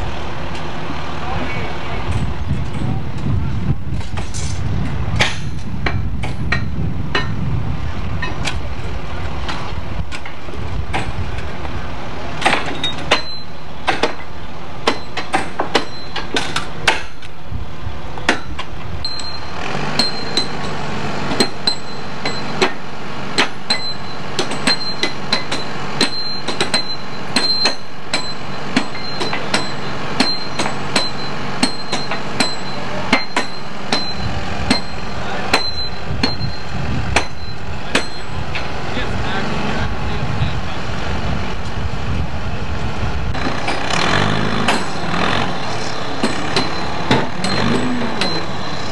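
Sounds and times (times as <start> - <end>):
heavy machine engine running: 0.0 - 48.9
hammer clanging on steel spikes: 12.4 - 17.3, 18.2 - 22.8, 23.4 - 36.6, 37.2 - 38.4, 43.4 - 48.9.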